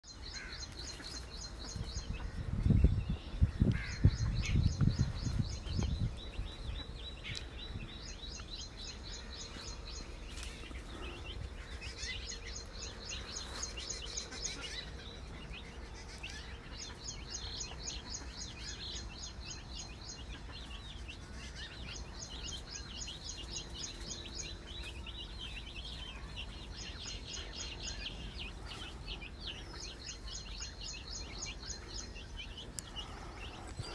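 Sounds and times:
birds chirping: 0.0 - 33.9.

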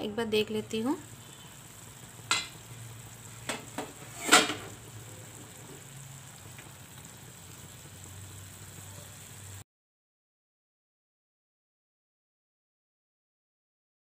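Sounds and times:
curry sizzling in pan: 0.0 - 9.6.

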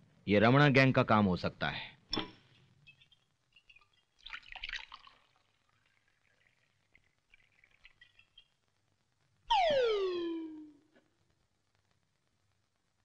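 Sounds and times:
drink poured into glass: 2.9 - 8.5.

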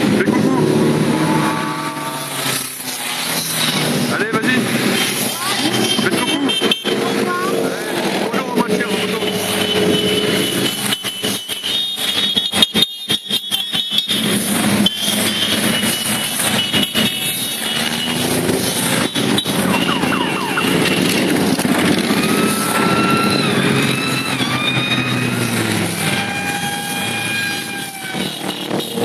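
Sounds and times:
motorcycles riding past: 0.0 - 11.5, 14.2 - 29.0
high gliding tones: 0.2 - 11.5.

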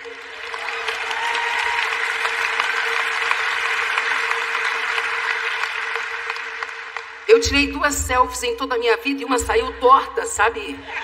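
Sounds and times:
large audience applauding: 0.0 - 7.5.

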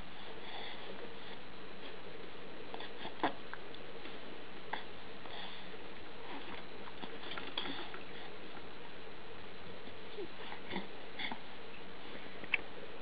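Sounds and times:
baby breathing softly: 0.0 - 2.0, 4.0 - 8.4
steady background hum: 0.0 - 13.0.

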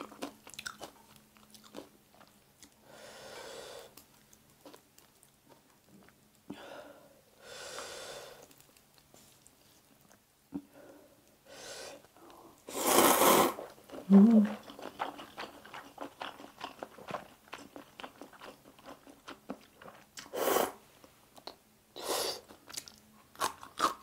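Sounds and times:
loud noodle slurp: 12.7 - 13.6.

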